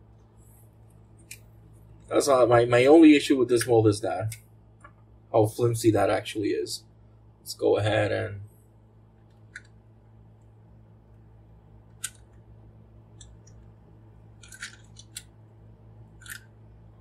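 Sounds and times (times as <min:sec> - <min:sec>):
plastic toy parts clicking: 0:12.0 - 0:12.3, 0:14.4 - 0:15.3, 0:16.2 - 0:16.5.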